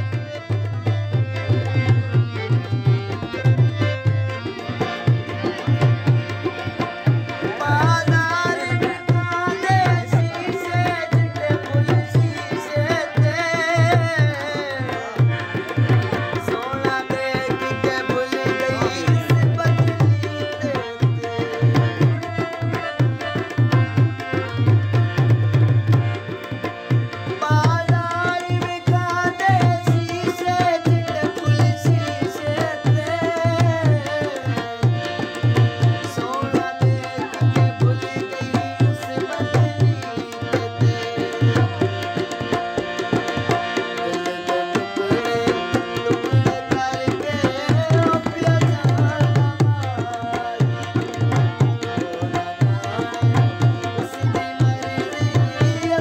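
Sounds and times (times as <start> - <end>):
harmonium: 0.0 - 56.0
man singing folk song: 7.5 - 15.2, 44.0 - 56.0.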